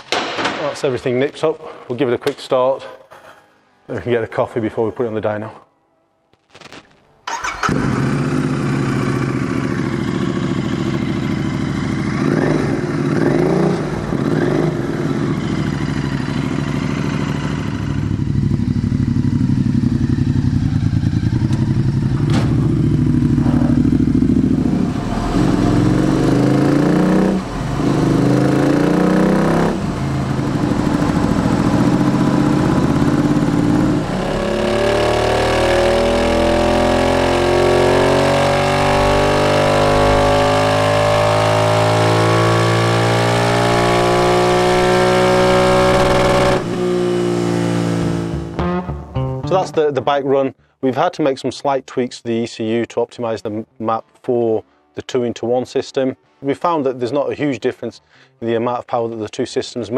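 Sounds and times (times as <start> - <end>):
motorcycle engine idling and revving: 7.3 - 48.6.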